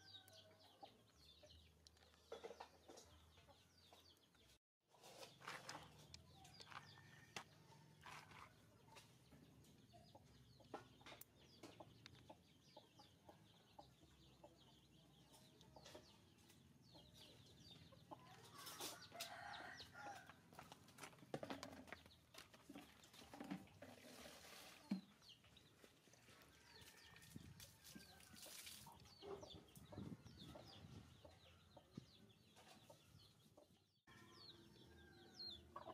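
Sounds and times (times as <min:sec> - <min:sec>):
chickens clucking: 0:08.1 - 0:19.5, 0:28.4 - 0:33.8, 0:35.4 - 0:35.9.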